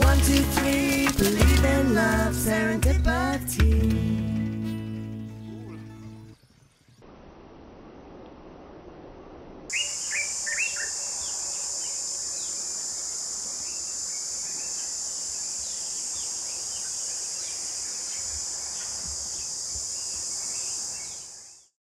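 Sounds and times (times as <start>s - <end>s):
high-pitched insect chorus: 9.7s - 21.7s
birds chirping: 9.7s - 21.8s.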